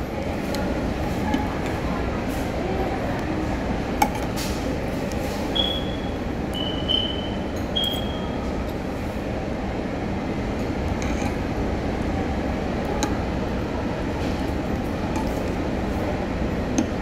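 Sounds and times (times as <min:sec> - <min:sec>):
dining room noise: 0:00.0 - 0:08.6.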